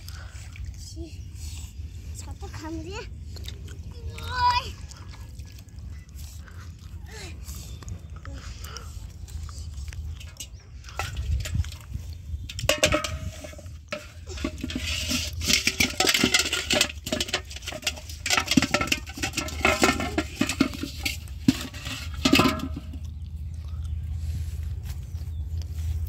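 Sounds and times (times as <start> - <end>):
aluminium pot clanking: 10.2 - 23.1.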